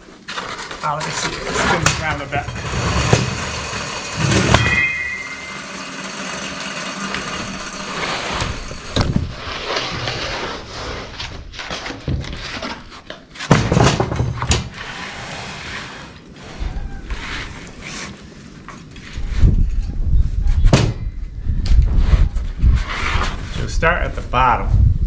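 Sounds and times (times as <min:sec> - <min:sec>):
wood boards sliding and scraping: 0:00.0 - 0:19.7, 0:21.8 - 0:23.7
wooden knocks and clatters: 0:11.3 - 0:14.8.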